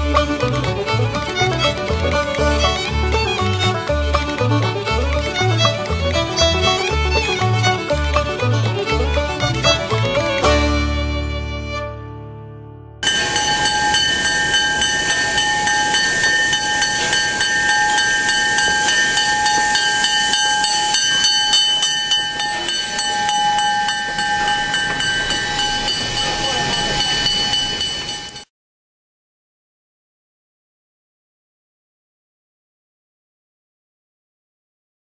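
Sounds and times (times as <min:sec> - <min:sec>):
high whistle-like tones: 0:13.0 - 0:28.4
steam hissing: 0:13.0 - 0:28.4.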